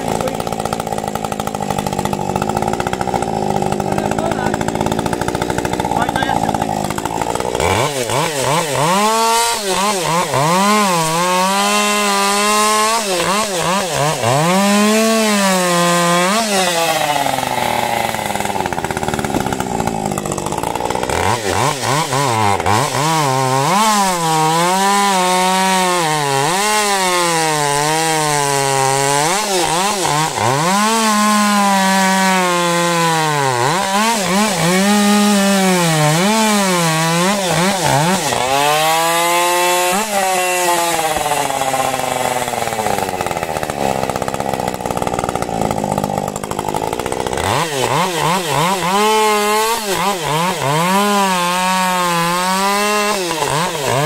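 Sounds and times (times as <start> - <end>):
chainsaw cutting at high revs: 0.0 - 54.0.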